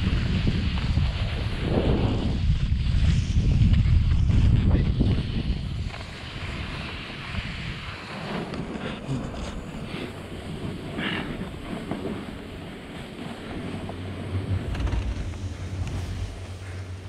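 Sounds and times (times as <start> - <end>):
snowboard sliding through powder snow: 0.0 - 17.0
wind buffeting microphone: 0.0 - 17.0.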